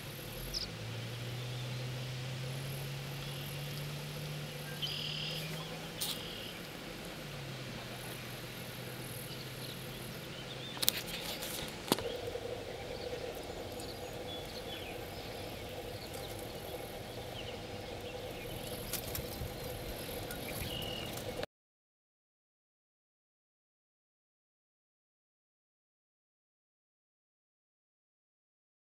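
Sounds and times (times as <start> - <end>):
insects chirring: 0.0 - 21.4.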